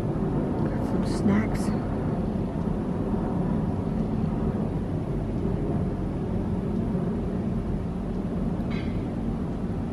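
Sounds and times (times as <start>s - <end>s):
steady low rumble: 0.0s - 9.9s.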